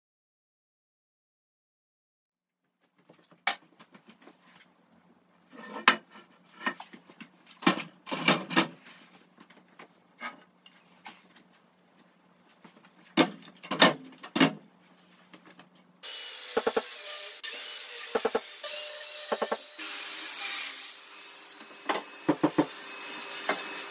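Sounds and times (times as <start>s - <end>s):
circular saw cutting wood: 16.0s - 23.9s.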